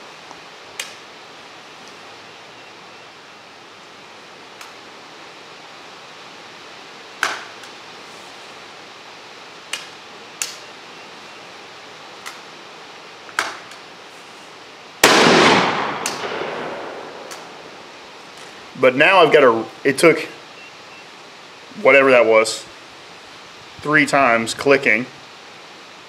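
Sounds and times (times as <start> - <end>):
shotgun misfire clicks: 15.0 - 17.5
shotgun shot: 15.0 - 17.6.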